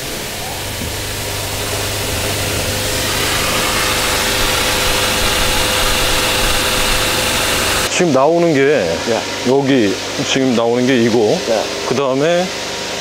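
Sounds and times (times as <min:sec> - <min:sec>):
water hissing from mist hoses: 0:00.0 - 0:07.9
steady machine hum: 0:00.0 - 0:13.0.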